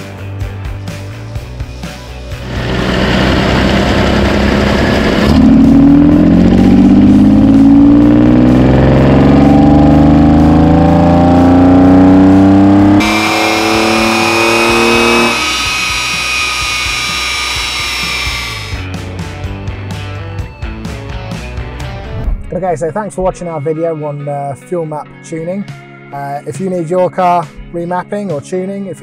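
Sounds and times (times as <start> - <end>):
engine revving at full throttle: 2.4 - 18.8.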